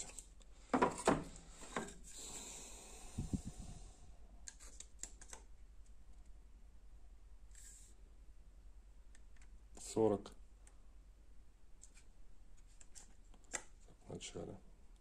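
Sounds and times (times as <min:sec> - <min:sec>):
soft scrape: 0:07.5 - 0:08.0.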